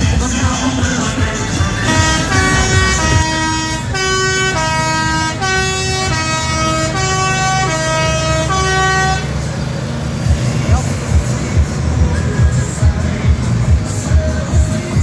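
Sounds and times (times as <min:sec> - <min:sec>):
tractor diesel engine running: 0:00.0 - 0:15.0
musical horn playing a tune: 0:01.6 - 0:09.3.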